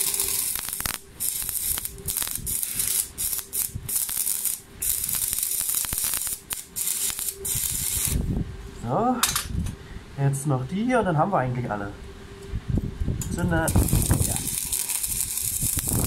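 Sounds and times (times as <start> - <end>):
welding arc crackling hiss: 0.0 - 8.3, 13.2 - 16.0.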